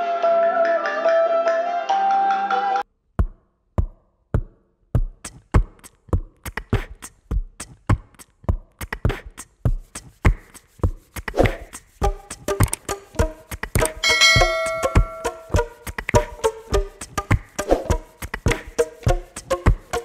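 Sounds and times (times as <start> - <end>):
background music: 0.0 - 2.8, 11.4 - 20.0
drum beat: 3.2 - 20.0.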